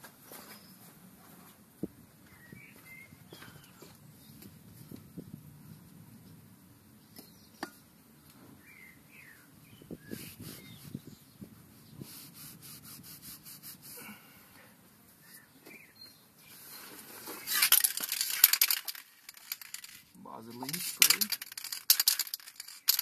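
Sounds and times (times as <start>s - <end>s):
birds chirping: 2.2s - 4.6s, 6.3s - 12.0s, 15.1s - 18.4s.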